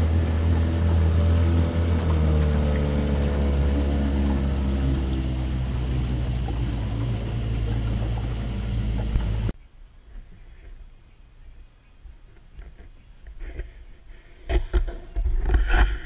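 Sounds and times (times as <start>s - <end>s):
outboard motor running: 0.0s - 9.6s.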